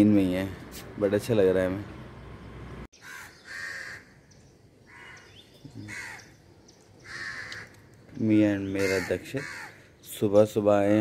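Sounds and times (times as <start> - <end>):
crows cawing: 3.0 - 6.4, 7.0 - 8.0, 8.6 - 10.1.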